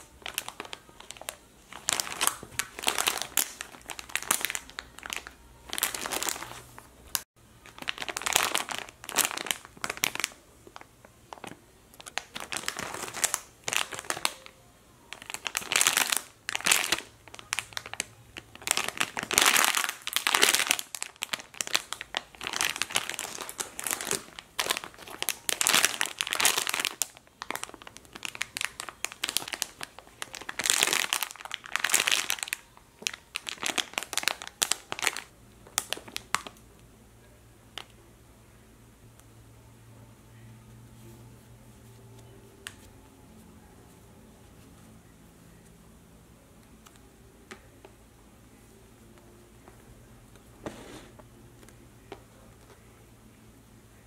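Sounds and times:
plastic packaging crinkling: 0.0s - 36.6s.

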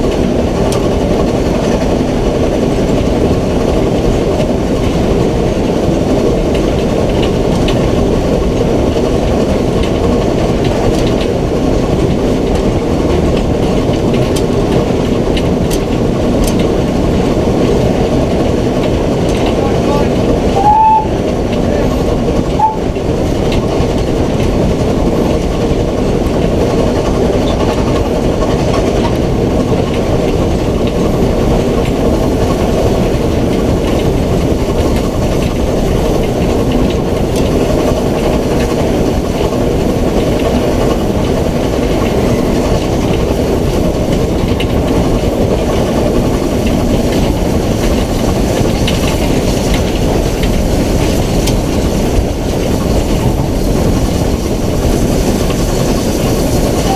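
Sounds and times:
steam locomotive rumbling: 0.0s - 56.9s.

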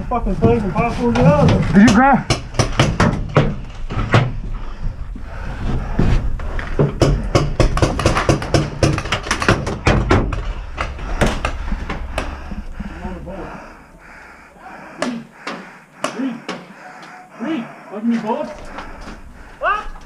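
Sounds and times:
low rumble: 3.6s - 16.0s, 18.6s - 20.0s.

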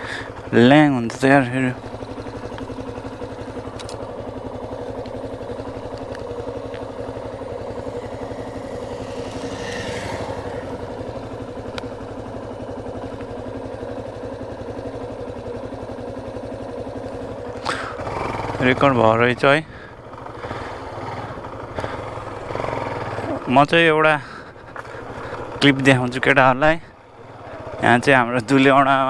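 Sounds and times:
engine running steadily: 0.0s - 29.0s.

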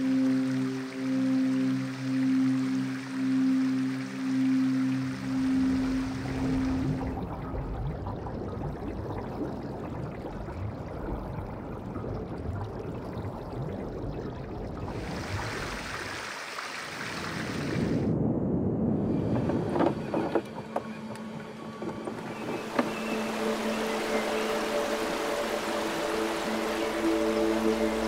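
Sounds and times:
faint steady tone: 0.0s - 8.6s
water swishing: 5.0s - 18.1s, 21.3s - 28.0s
low underwater rumble: 5.3s - 15.8s.

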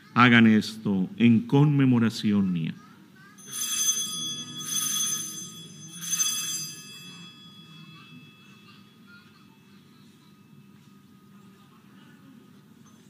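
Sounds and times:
altar bells ringing: 3.4s - 10.8s.

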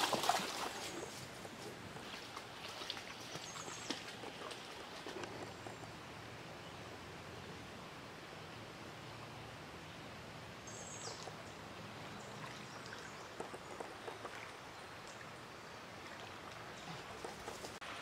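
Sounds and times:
creek water running over riffle: 0.0s - 7.2s, 11.1s - 18.0s.

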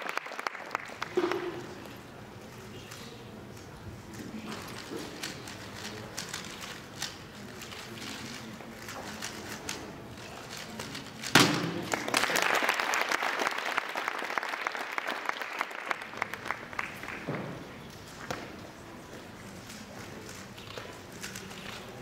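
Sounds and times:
applause: 0.0s - 1.7s, 11.8s - 17.3s
puzzle cube turning: 4.1s - 11.3s, 19.6s - 22.0s.

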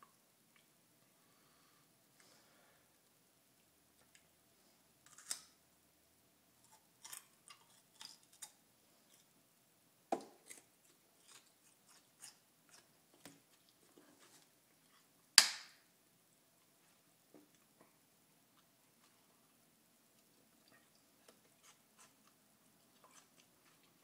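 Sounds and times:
chewing garlic crunches: 6.6s - 9.3s, 10.4s - 12.9s, 20.2s - 24.0s.

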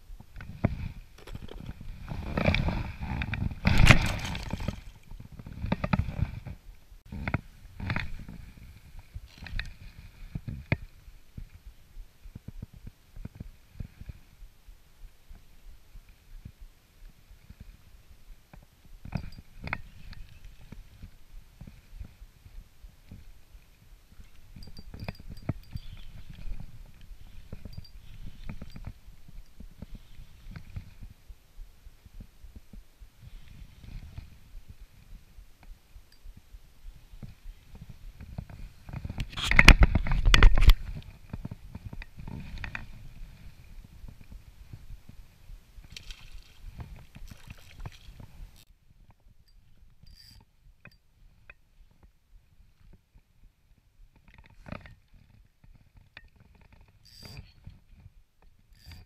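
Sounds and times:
fishing tackle clicks and knocks: 1.2s - 1.8s
fishing reel clicks: 50.1s - 50.4s, 57.0s - 57.4s.

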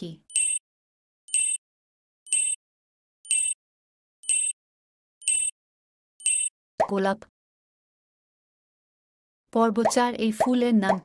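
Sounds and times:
countdown timer ticks: 0.3s - 0.6s, 1.3s - 1.6s, 2.3s - 2.6s, 3.2s - 3.6s, 4.2s - 4.6s, 5.2s - 5.5s, 6.2s - 7.0s.

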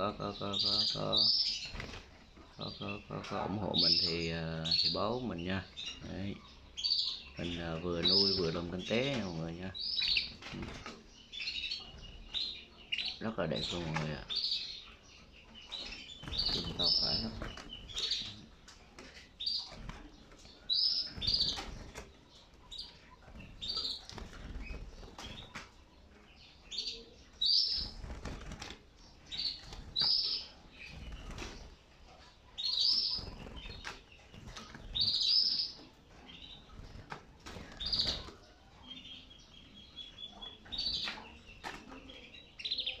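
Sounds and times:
canaries chirping: 0.0s - 43.0s
wings flapping: 16.1s - 18.4s, 21.1s - 25.8s, 27.7s - 31.8s, 32.8s - 35.3s, 36.7s - 38.5s.

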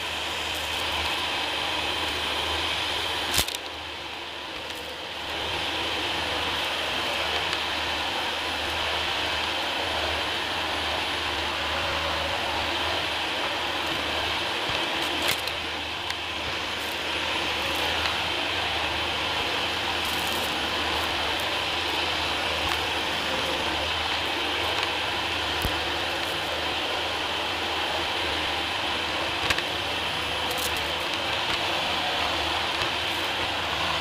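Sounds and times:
vacuum cleaner running: 0.0s - 34.0s
debris clicks in vacuum: 3.2s - 3.9s, 4.6s - 5.4s, 13.8s - 18.8s, 19.7s - 26.5s, 29.4s - 34.0s.

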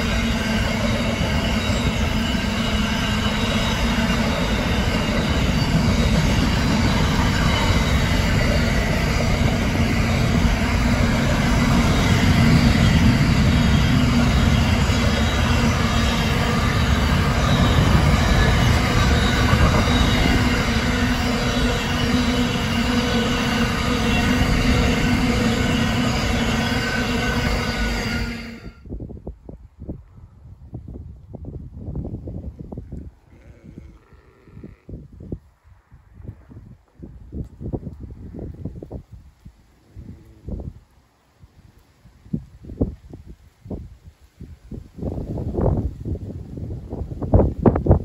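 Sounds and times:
train wheels squealing: 0.0s - 28.8s
freight train wheels rumbling: 0.0s - 28.9s.

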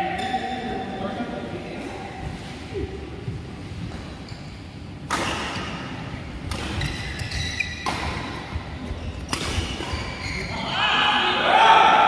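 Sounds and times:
rackets striking shuttlecock: 5.0s - 8.6s, 9.2s - 10.0s.

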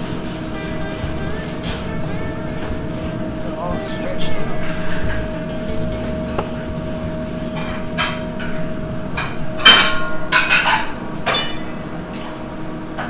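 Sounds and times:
steady hum: 0.0s - 13.0s
metal pans clattering: 7.5s - 12.3s.

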